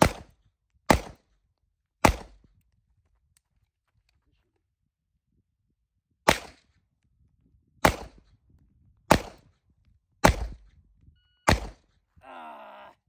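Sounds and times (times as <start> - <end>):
handgun shots: 11.5 - 11.9.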